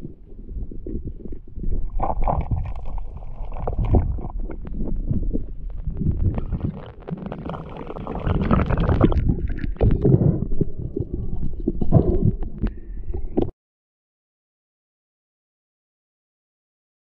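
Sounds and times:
underwater water rumble: 0:00.0 - 0:13.5.

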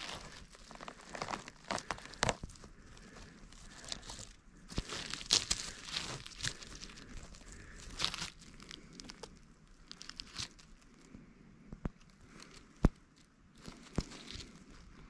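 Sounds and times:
needle litter crackling and rustling: 0:00.0 - 0:09.3.

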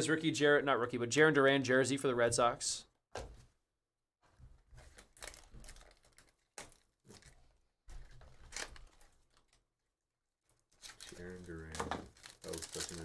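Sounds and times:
wrapper crinkling: 0:04.8 - 0:09.6, 0:10.5 - 0:13.0.

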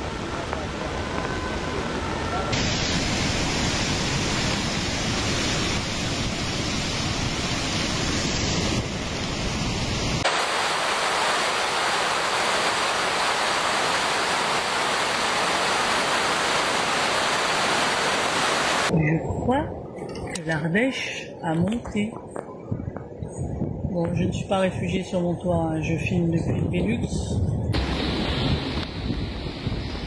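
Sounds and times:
water rushing over rocks: 0:02.4 - 0:18.9.

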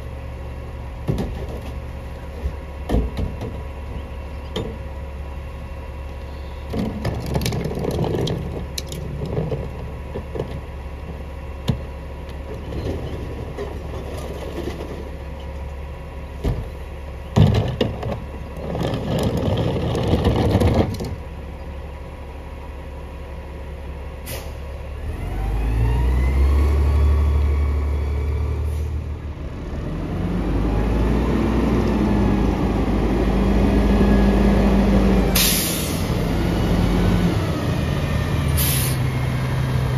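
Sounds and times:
garbage truck engine: 0:00.0 - 0:39.9
bins knocking and clattering: 0:06.7 - 0:10.6, 0:17.3 - 0:21.2
truck accelerating: 0:23.9 - 0:39.9.

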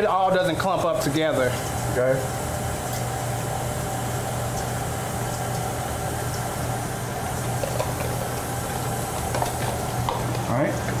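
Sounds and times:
liquid pouring: 0:01.5 - 0:11.0
stand mixer motor hum: 0:02.4 - 0:11.0
wire whisk beating batter: 0:07.4 - 0:11.0.

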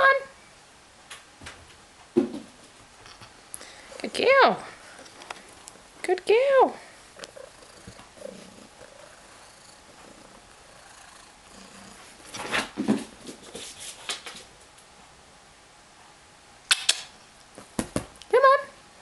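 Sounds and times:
knocks and scuffles: 0:01.4 - 0:03.3, 0:12.3 - 0:14.5
cat purring: 0:03.4 - 0:12.4.

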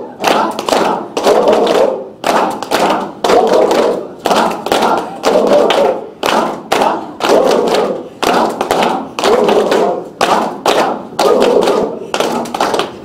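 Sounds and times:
group clapping in rhythm: 0:00.0 - 0:13.0.

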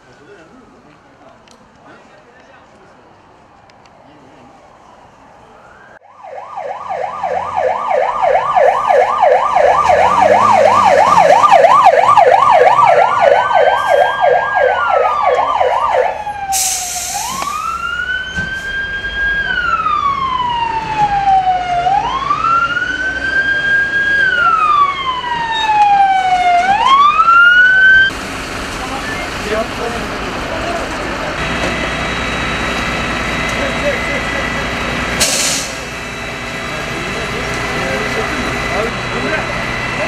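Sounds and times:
fire engine siren: 0:04.5 - 0:40.0
brief hiss: 0:16.5 - 0:17.6, 0:35.2 - 0:35.9.

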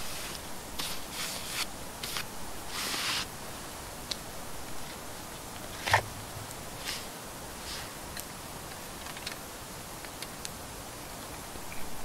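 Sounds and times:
foil rustling and scraping: 0:00.0 - 0:03.3.

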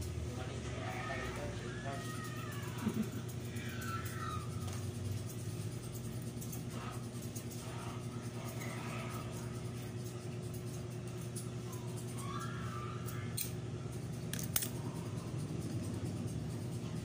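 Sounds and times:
steady low hum: 0:00.0 - 0:17.0
scissors snipping hair: 0:01.3 - 0:17.0.

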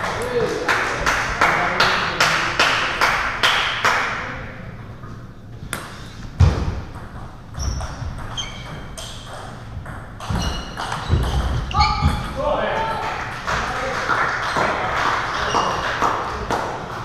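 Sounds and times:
table tennis ball bouncing: 0:05.7 - 0:12.4
thud: 0:06.4 - 0:06.8
short high squeaks: 0:07.5 - 0:09.3, 0:10.3 - 0:12.4.

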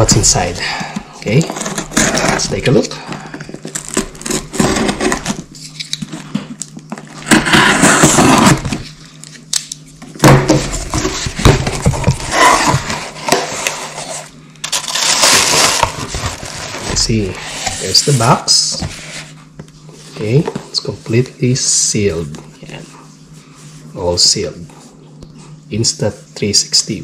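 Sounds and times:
knife slitting packing tape: 0:14.6 - 0:15.9.

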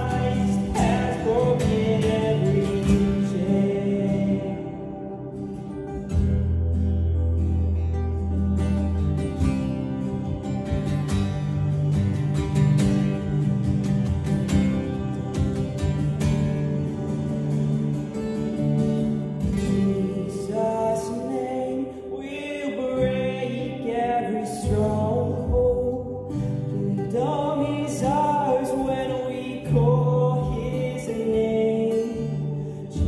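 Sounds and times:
man singing: 0:00.0 - 0:05.8, 0:19.4 - 0:33.0
acoustic guitars strummed: 0:00.0 - 0:33.0.

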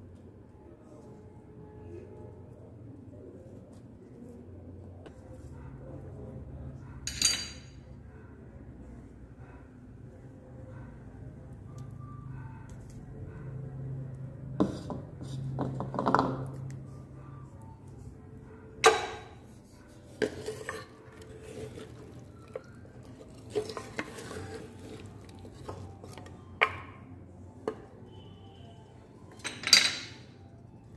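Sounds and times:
spoon clinking against clay: 0:07.0 - 0:07.9, 0:18.8 - 0:27.0
spoon stirring in clay pot: 0:18.9 - 0:27.1.

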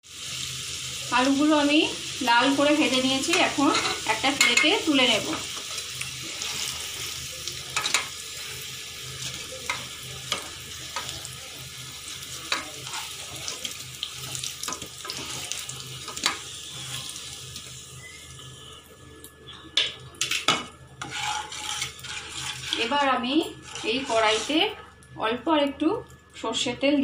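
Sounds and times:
oil sizzling: 0:00.0 - 0:26.5
wooden spatula clicking and scraping: 0:21.0 - 0:24.6.

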